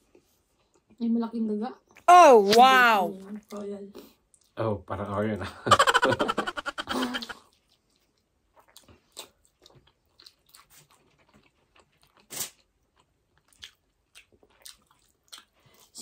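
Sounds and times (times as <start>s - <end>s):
chewing and lip smacks: 4.2s - 4.6s, 7.3s - 16.0s
person laughing: 5.7s - 7.4s.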